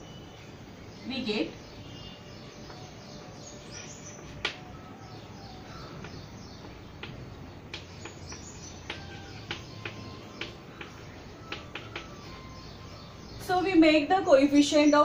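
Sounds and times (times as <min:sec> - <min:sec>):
chalk tapping on blackboard: 0:06.0 - 0:12.3.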